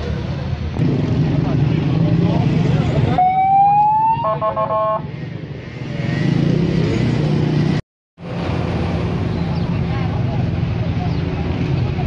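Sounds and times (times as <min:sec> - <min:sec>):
street noise with engines: 0:00.0 - 0:12.0
emergency vehicle siren: 0:03.2 - 0:05.0.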